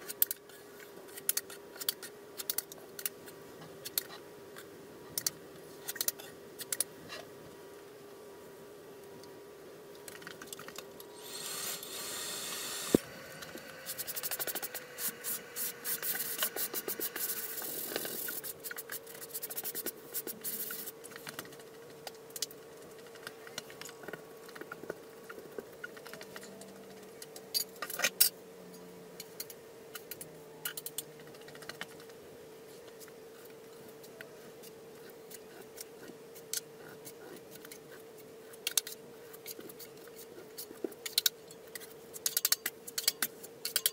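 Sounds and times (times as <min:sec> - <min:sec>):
steady hum: 0:00.0 - 0:43.9.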